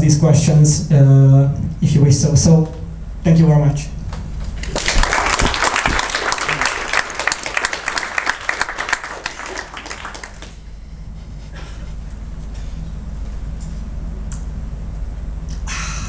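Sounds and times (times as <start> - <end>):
audience applauding: 4.6 - 10.7.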